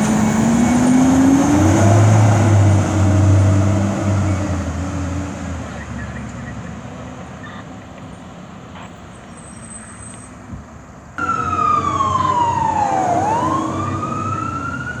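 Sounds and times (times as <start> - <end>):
fire engine siren wailing: 0.0 - 4.3, 11.2 - 15.0
faint engine and road noise: 0.0 - 15.0.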